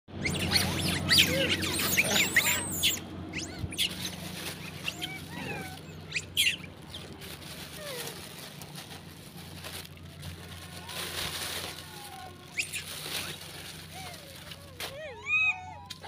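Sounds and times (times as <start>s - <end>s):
monkeys squeaking and chirping: 0.1s - 8.6s, 10.4s - 16.0s
steady low hum: 0.1s - 15.2s.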